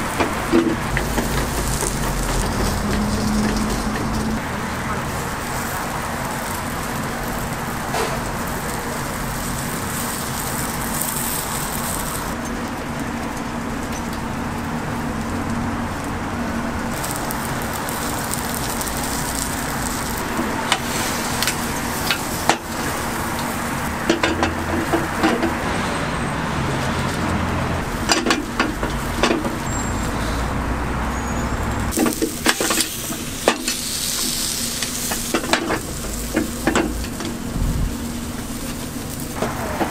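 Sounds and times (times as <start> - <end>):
batter sizzling in hot molds: 0.0 - 25.6, 31.8 - 39.9
street traffic: 0.0 - 39.9
sharp clicks and knocks: 0.2 - 4.4, 28.0 - 29.6, 35.1 - 37.4.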